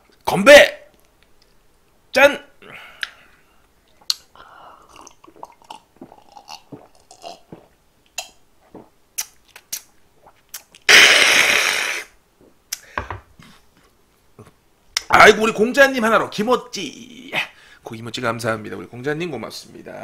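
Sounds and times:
man gulping a drink: 3.9s - 12.1s.

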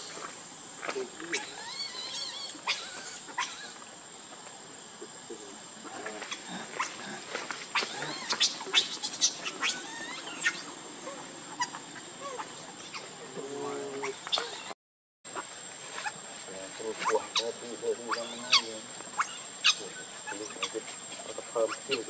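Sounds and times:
baby monkey crying squeals: 1.3s - 3.8s, 7.7s - 10.7s, 11.5s - 13.1s, 14.0s - 14.7s, 18.1s - 20.8s.

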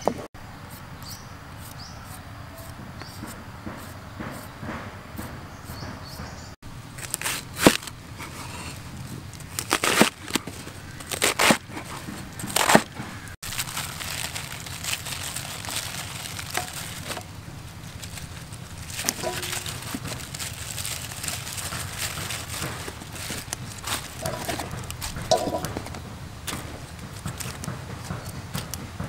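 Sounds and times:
cabbage leaves torn by hand: 7.0s - 7.9s, 9.4s - 11.8s, 12.4s - 25.3s.

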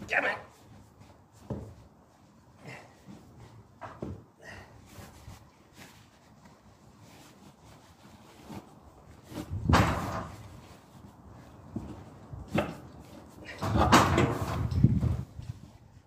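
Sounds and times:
knocks and rattling clatter: 9.2s - 10.6s, 11.7s - 15.7s.

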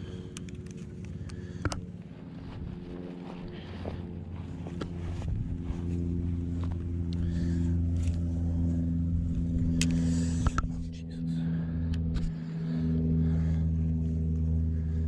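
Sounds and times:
low motor hum: 0.0s - 15.0s
fishing reel clicks and knocks: 0.2s - 1.8s, 9.6s - 10.7s.

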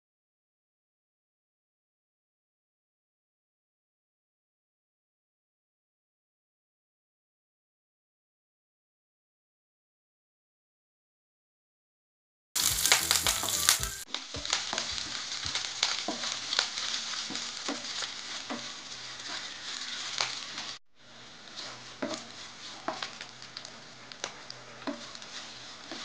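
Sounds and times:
oil sizzling in a frying pan: 12.6s - 26.0s
wooden spatula scraping a pan: 12.6s - 26.0s.

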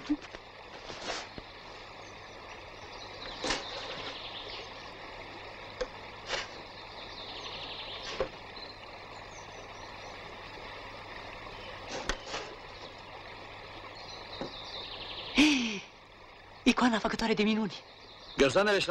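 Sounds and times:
faint steady hum: 0.0s - 18.8s
wooden case scraping: 3.3s - 4.3s.

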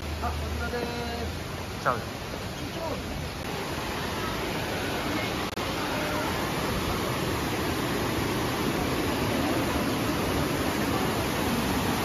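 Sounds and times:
mountain stream rushing: 0.0s - 12.0s.

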